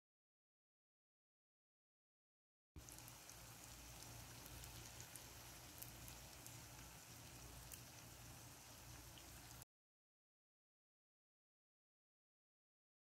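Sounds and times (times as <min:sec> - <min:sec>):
dough frying in hot oil: 0:02.8 - 0:09.7.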